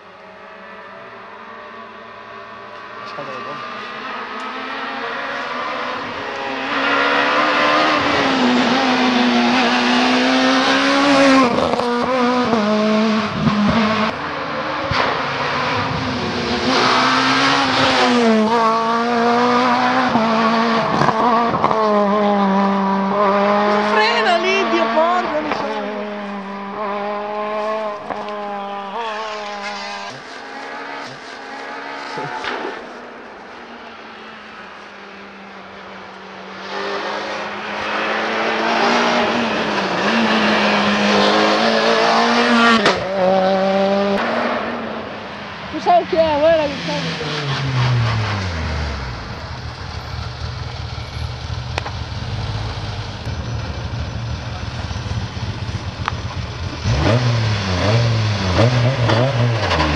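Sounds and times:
rally car engine revving: 0.0s - 59.9s
car engine idling: 48.2s - 58.6s.

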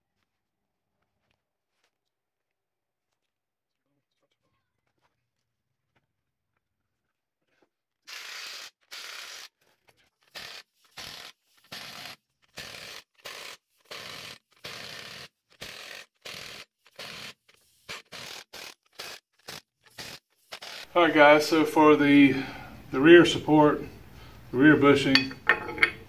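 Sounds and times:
socket tool rasping bursts: 8.1s - 21.0s.

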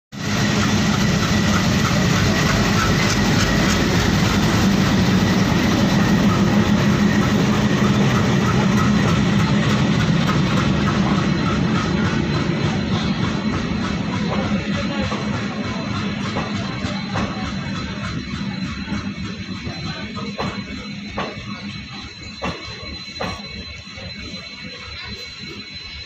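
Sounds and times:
diesel locomotive engine drone: 0.1s - 26.0s
train wheels clattering on rails: 0.2s - 26.0s.

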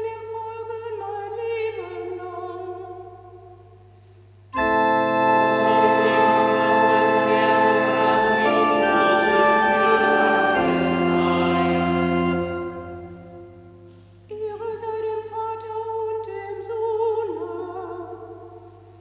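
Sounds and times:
organ playing sustained chords: 4.6s - 14.3s.

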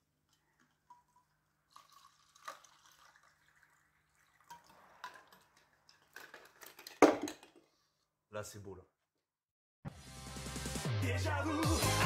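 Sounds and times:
liquid trickling into plastic cup: 0.6s - 6.6s.

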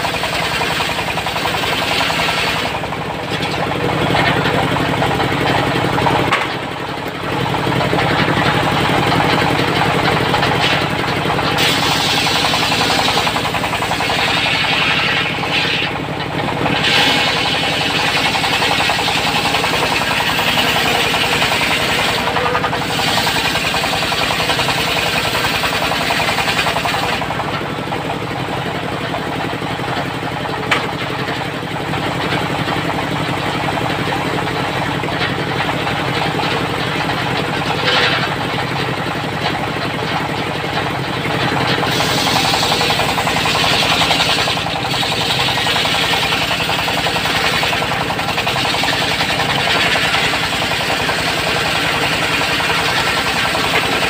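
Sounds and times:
saw blade cutting wood: 0.0s - 4.6s, 9.7s - 27.4s, 37.6s - 38.6s, 41.6s - 54.0s
diesel engine running: 0.0s - 54.0s.

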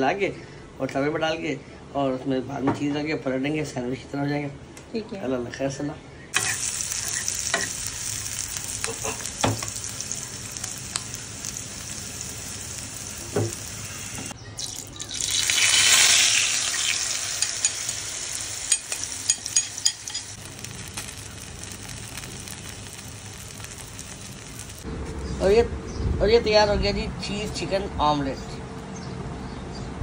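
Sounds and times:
onion and tomato sizzling in oil: 6.3s - 24.9s.

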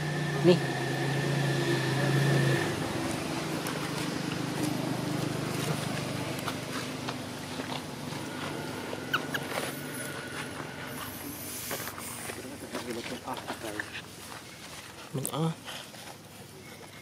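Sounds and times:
scuffs on dirt and dry leaves: 3.0s - 17.0s
short high squeaks: 8.6s - 12.2s.

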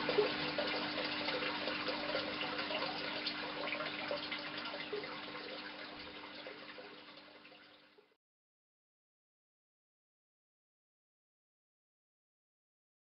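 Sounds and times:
aquarium water bubbling: 0.0s - 8.2s.

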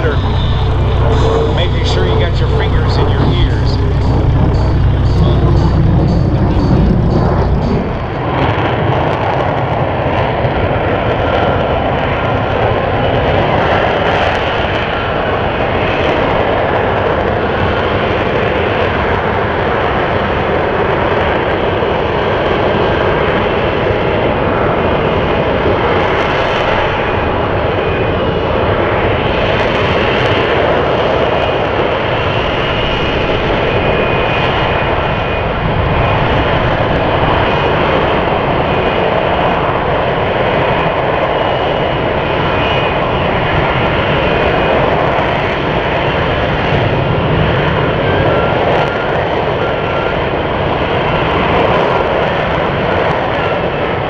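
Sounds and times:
thin whining tones: 0.0s - 8.2s
loud jet engine: 0.0s - 54.0s.

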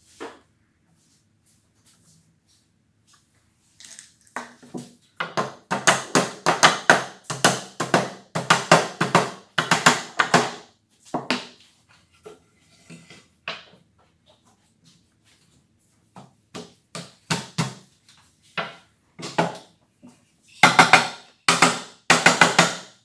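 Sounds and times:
wooden mallet knocking on wood: 5.2s - 10.6s.

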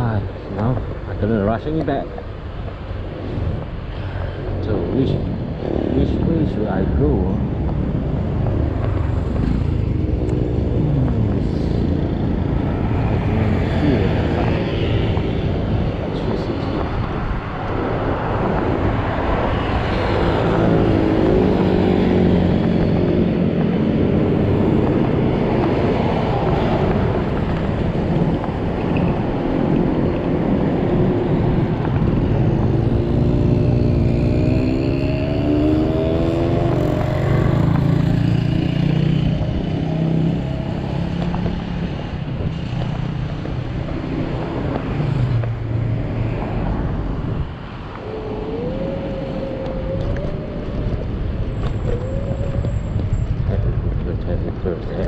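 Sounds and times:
passing cars and motorcycles: 0.0s - 55.0s
wind rushing over microphone: 0.0s - 55.0s.

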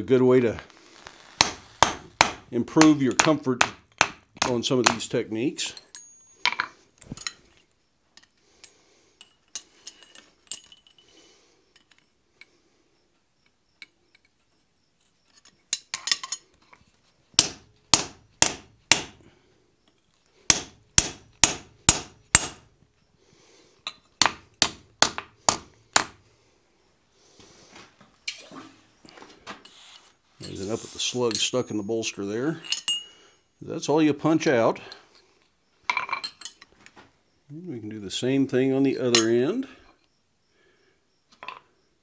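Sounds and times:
hammer striking metal punch: 1.4s - 5.1s, 17.4s - 19.2s, 20.5s - 22.7s.

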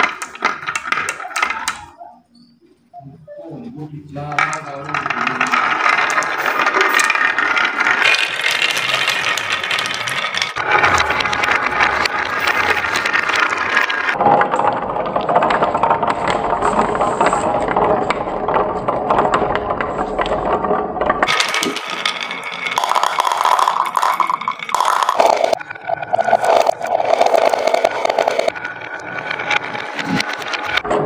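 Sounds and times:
marbles rattling on wood: 0.0s - 2.0s, 4.2s - 30.9s.

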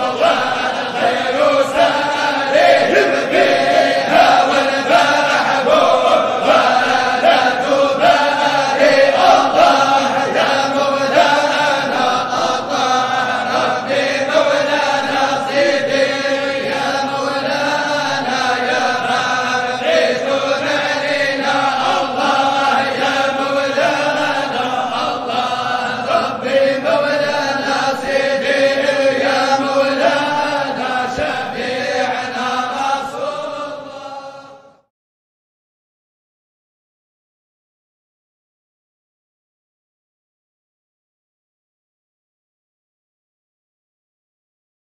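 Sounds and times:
person chanting: 0.0s - 34.9s.

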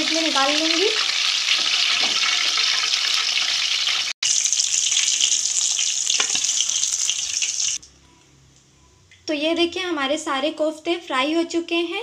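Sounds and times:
food deep-frying in hot oil: 0.0s - 7.8s.

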